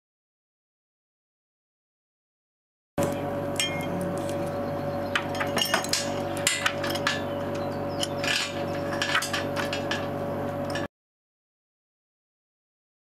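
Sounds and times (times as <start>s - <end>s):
steady hum: 3.0s - 10.9s.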